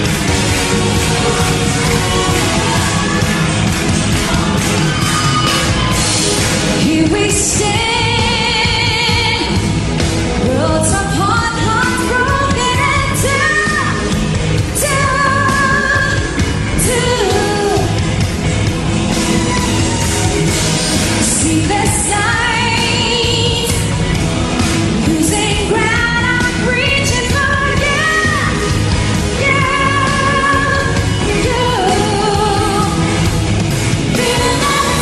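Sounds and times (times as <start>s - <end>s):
band with steady drum beat: 0.0s - 35.0s
woman singing into a microphone: 6.8s - 9.6s, 10.4s - 14.0s, 14.8s - 18.0s, 21.2s - 23.9s, 25.0s - 33.2s, 34.1s - 35.0s.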